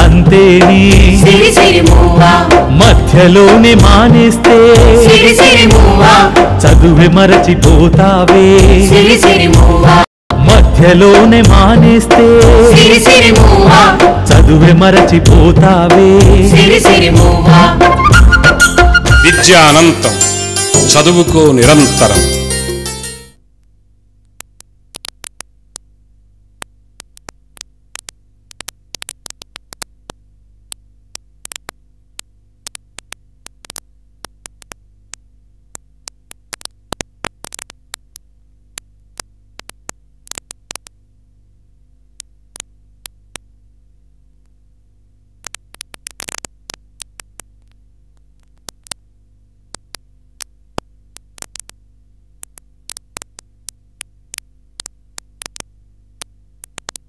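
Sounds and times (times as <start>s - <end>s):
steady low hum: 0.0s - 19.1s, 23.4s - 57.0s
sharp clicks and crackles: 23.6s - 26.0s, 26.6s - 41.0s, 42.2s - 43.5s, 45.4s - 49.1s, 49.7s - 57.0s.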